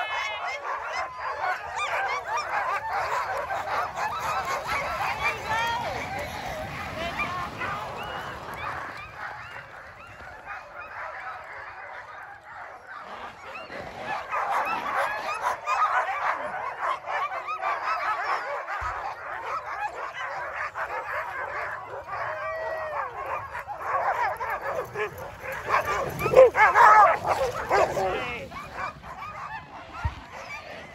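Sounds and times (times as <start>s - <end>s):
dogs barking and yelping: 0.0s - 30.9s.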